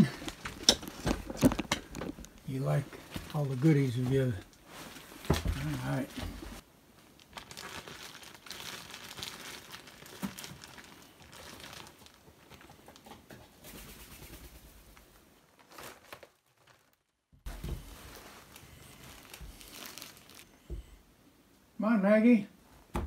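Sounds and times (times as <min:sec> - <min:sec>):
plastic bag crinkling: 0:00.0 - 0:13.0, 0:15.4 - 0:20.8.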